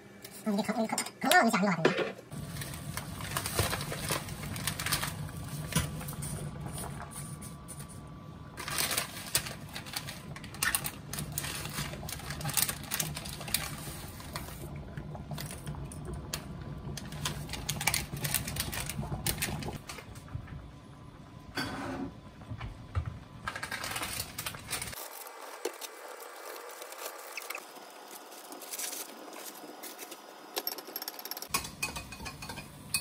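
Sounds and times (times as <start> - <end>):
water boiling and bubbling: 2.3 - 33.0.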